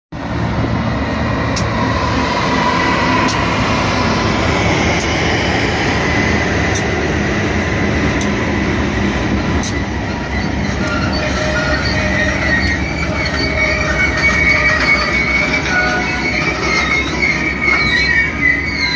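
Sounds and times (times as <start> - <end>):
freight train rumbling past: 0.2 - 18.9
train wheels clicking on rails: 1.4 - 11.1.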